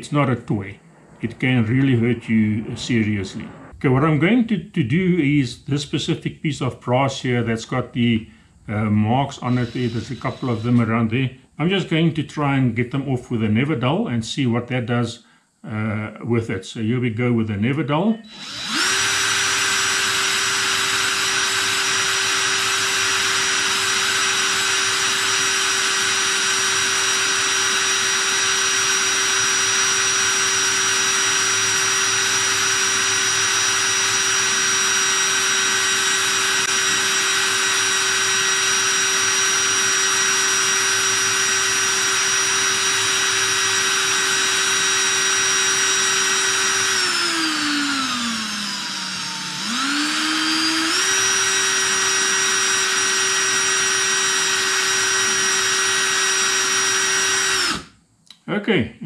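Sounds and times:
cordless drill motor running: 9.4s - 11.0s, 18.2s - 58.0s.

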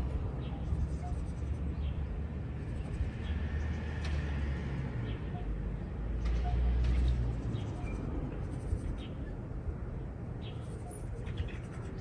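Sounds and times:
small birds chirping: 10.4s - 12.0s.

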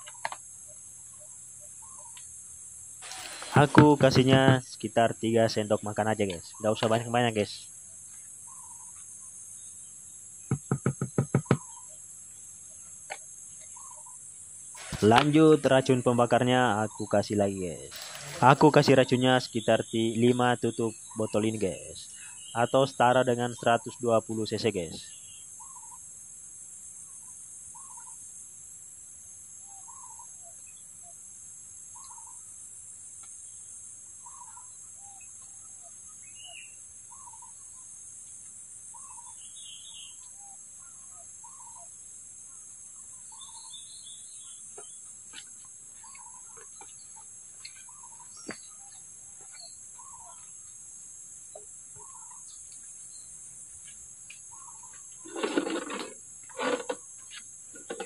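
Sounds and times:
bird calling softly: 0.0s - 2.3s, 8.1s - 9.4s, 10.6s - 12.0s, 12.8s - 16.0s, 25.0s - 26.1s, 27.0s - 28.2s, 29.6s - 31.2s, 31.9s - 32.5s, 34.2s - 37.9s, 38.9s - 50.8s, 51.5s - 53.3s, 54.5s - 57.9s
crickets chirping: 0.0s - 58.0s.

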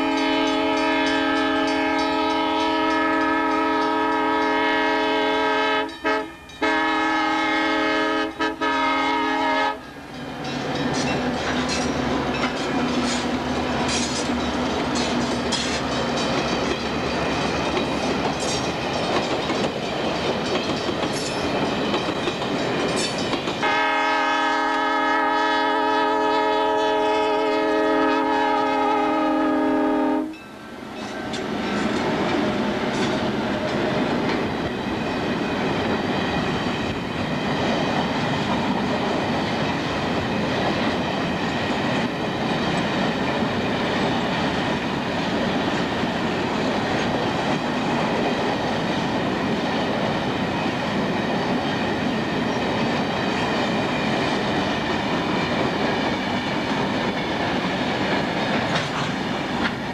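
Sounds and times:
locomotive horn chord: 0.0s - 9.9s, 23.6s - 30.4s
freight train rolling past: 0.0s - 59.9s.

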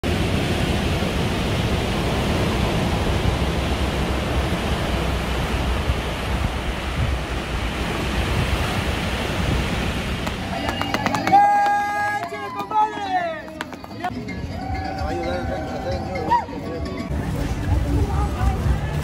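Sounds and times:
surf breaking on rocks: 0.0s - 14.1s.

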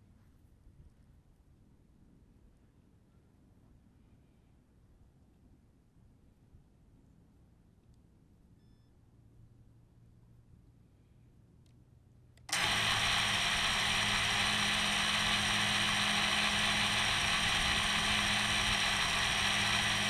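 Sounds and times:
quadcopter motors spinning: 12.5s - 20.0s.

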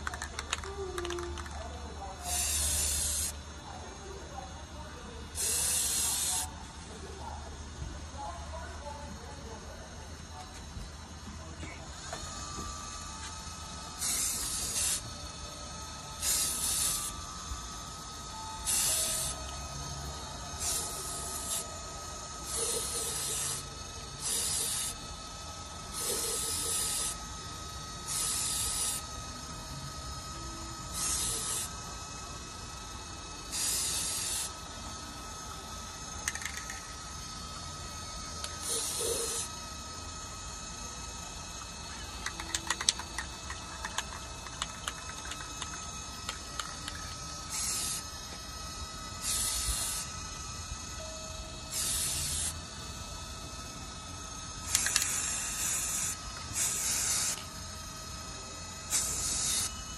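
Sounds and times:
spray can hissing: 0.0s - 1.6s, 2.2s - 3.4s, 5.3s - 6.5s, 12.0s - 15.1s, 16.2s - 35.0s, 35.6s - 50.9s, 51.7s - 52.7s, 54.4s - 59.9s
faint steady whine: 0.0s - 59.9s.

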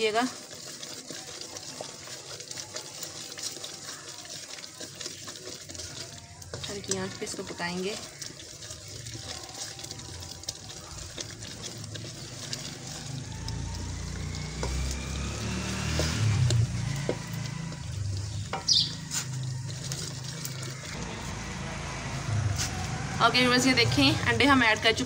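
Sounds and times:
mixture sizzling softly: 0.0s - 25.0s
wooden spatula scraping pan: 0.0s - 25.0s
low rumble: 20.9s - 24.8s.

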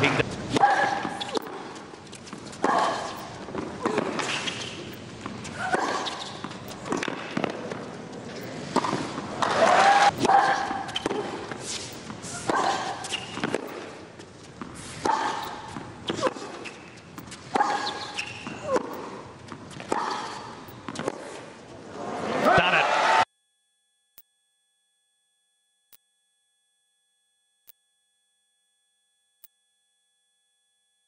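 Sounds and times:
player grunting: 22.3s - 23.0s.

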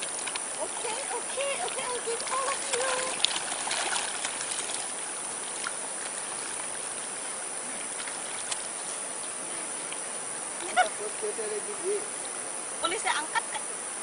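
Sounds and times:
water splashing by fish: 0.0s - 10.9s.

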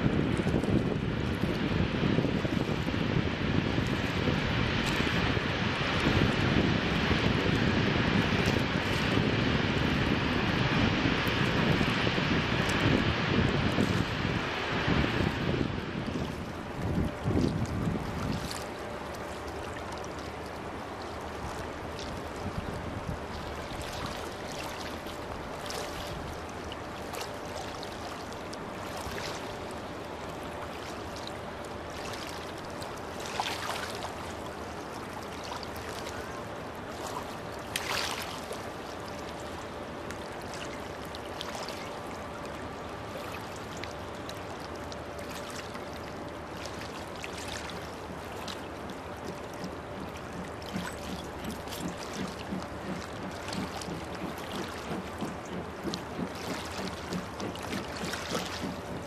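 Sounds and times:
faint constant hum: 0.0s - 59.0s
river water lapping: 0.0s - 59.0s.

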